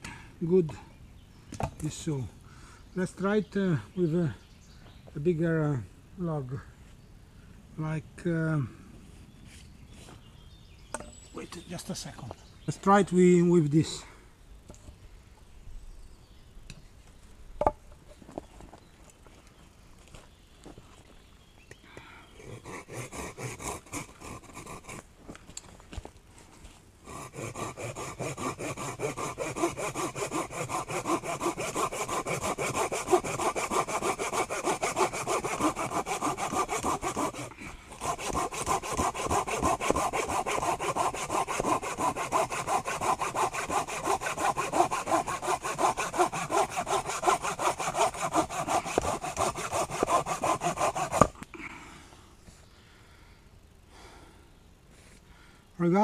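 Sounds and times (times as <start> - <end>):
folding saw cutting branch: 22.4 - 25.1, 27.0 - 51.5.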